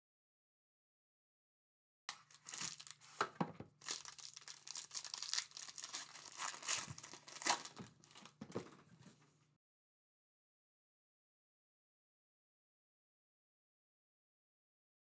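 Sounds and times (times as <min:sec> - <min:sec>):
foil wrapper tearing and crinkling: 0:02.1 - 0:03.2, 0:03.8 - 0:08.6.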